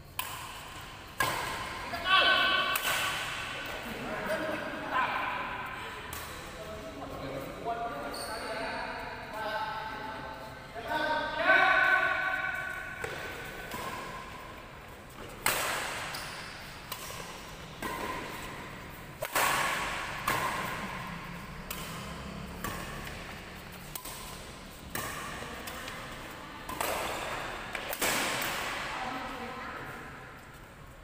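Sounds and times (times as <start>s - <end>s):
racket hitting shuttlecock: 0.1s - 6.5s, 11.8s - 28.9s.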